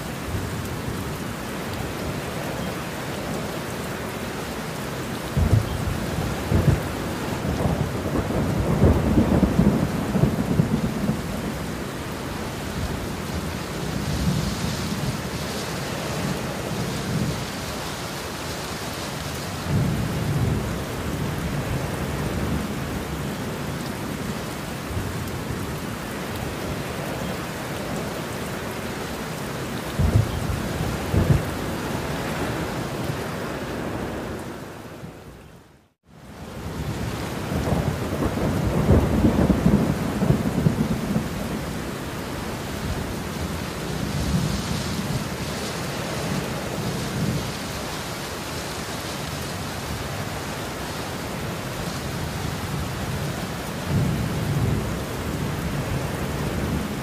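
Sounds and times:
heavy rain: 0:00.0 - 0:57.0
thunder claps and rumbling: 0:05.3 - 0:11.8, 0:29.8 - 0:32.6, 0:36.6 - 0:41.9, 0:52.5 - 0:57.0.

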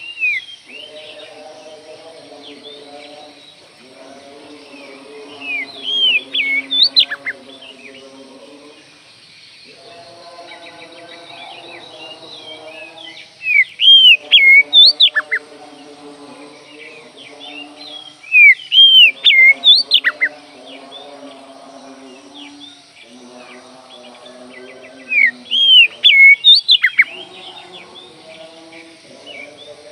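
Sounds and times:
bird singing sweeping whistles: 0:00.0 - 0:01.2, 0:05.4 - 0:08.0, 0:11.2 - 0:15.4, 0:17.8 - 0:20.3, 0:24.9 - 0:27.3.

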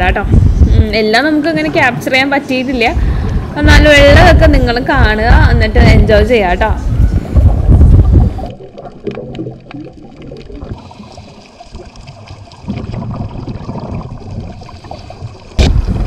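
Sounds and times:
open-air noise: 0:00.0 - 0:08.7
underwater regulator bubbles gurgling: 0:06.9 - 0:16.0.

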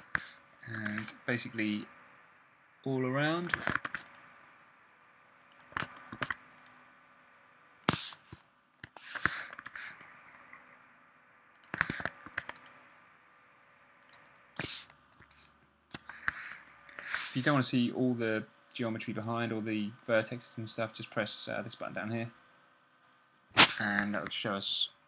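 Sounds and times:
keyboard and mouse clicks: 0:00.0 - 0:01.9, 0:03.4 - 0:04.3, 0:05.4 - 0:06.8, 0:07.9 - 0:10.2, 0:11.5 - 0:12.8, 0:14.0 - 0:17.2.

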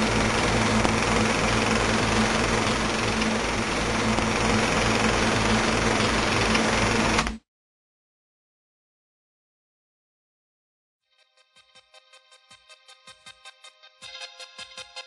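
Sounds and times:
film projector whirring and clattering: 0:00.0 - 0:07.4
low hum: 0:00.0 - 0:07.4.

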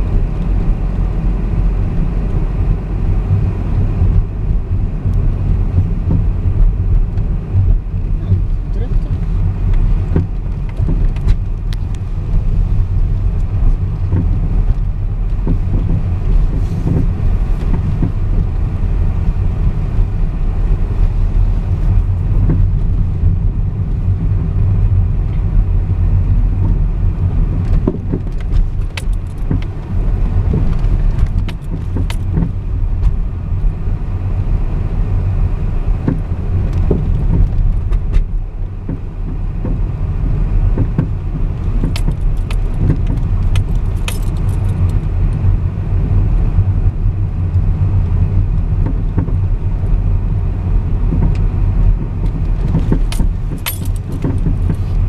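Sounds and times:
car engine and tyres rumbling: 0:00.0 - 0:55.0
rattles and clicks: 0:05.0 - 0:18.6, 0:27.6 - 0:33.2, 0:40.8 - 0:45.5, 0:51.1 - 0:55.0.

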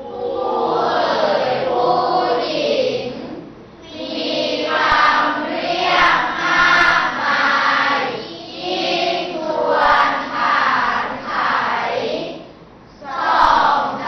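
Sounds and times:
children chanting in unison: 0:00.0 - 0:14.0.

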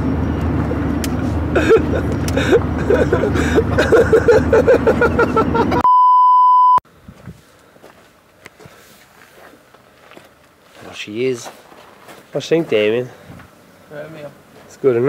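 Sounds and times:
engine and road noise in cabin: 0:00.0 - 0:06.0
electronic beep tone: 0:05.8 - 0:06.8.

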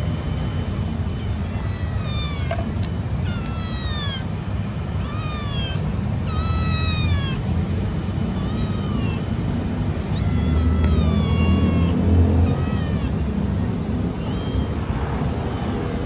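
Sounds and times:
low background rumble: 0:00.0 - 0:16.0
kitten meowing: 0:01.1 - 0:07.6, 0:08.2 - 0:09.3, 0:10.0 - 0:13.3, 0:14.1 - 0:16.0.

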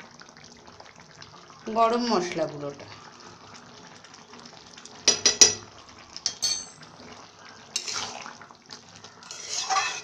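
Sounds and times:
spoon knocking on metal pan: 0:05.1 - 0:05.6
spoon stirring thick curry: 0:07.8 - 0:10.0.

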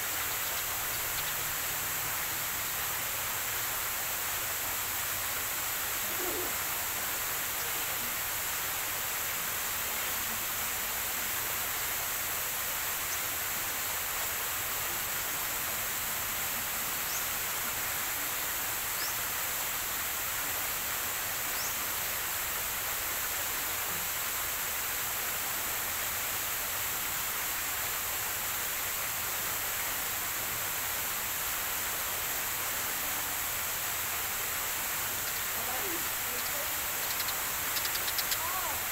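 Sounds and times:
outdoor background hiss: 0:00.0 - 0:38.9
bird chirping: 0:00.1 - 0:01.4, 0:35.2 - 0:38.7.

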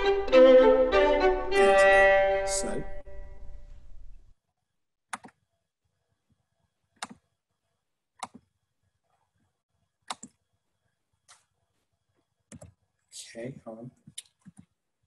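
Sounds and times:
violin: 0:00.0 - 0:03.3
computer mouse clicks: 0:05.1 - 0:05.4, 0:07.0 - 0:07.2, 0:08.2 - 0:08.5, 0:10.1 - 0:10.4, 0:12.5 - 0:12.8.

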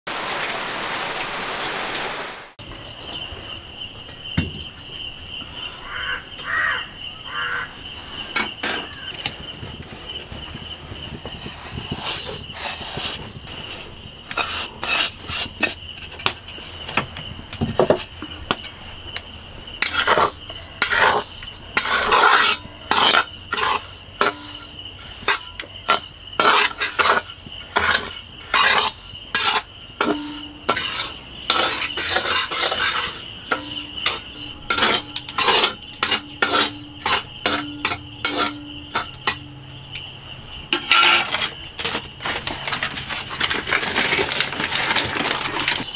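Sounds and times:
metal spatula scraping iron pan: 0:11.9 - 0:16.4, 0:19.8 - 0:40.0, 0:40.7 - 0:45.8.

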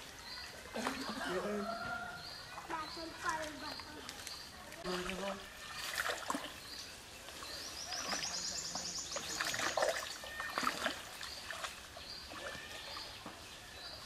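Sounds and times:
net splashing through water: 0:04.8 - 0:06.8, 0:09.2 - 0:13.4.

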